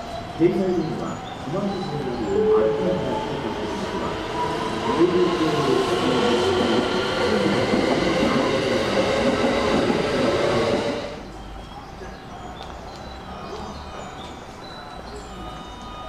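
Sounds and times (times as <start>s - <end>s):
electric train whine: 0.0s - 11.4s
train wheels rolling: 0.8s - 11.2s.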